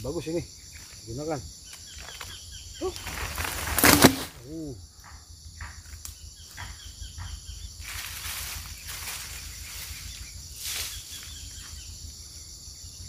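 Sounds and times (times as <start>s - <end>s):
insects droning: 0.0s - 13.0s
log thudding onto leaf litter: 2.8s - 4.4s
footsteps rustling through dry litter: 7.8s - 11.4s.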